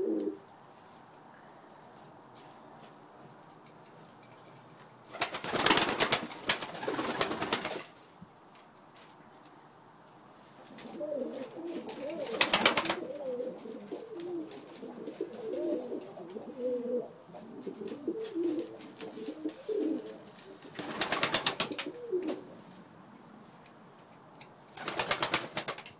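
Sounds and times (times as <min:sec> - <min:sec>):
pigeons cooing: 0:00.0 - 0:00.5, 0:10.8 - 0:22.6
wings flapping: 0:05.1 - 0:07.9, 0:11.8 - 0:13.1, 0:20.6 - 0:22.4, 0:24.7 - 0:25.9.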